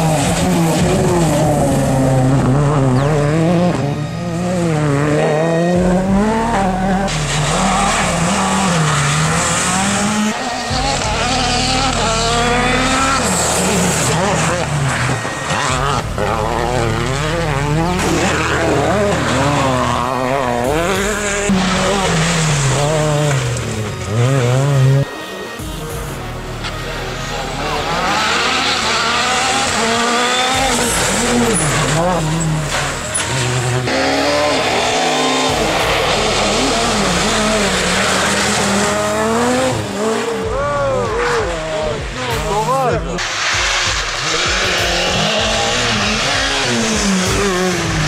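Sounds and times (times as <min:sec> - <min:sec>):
rally car engines revving: 0:00.0 - 0:48.0
car accelerating close by: 0:26.7 - 0:48.0.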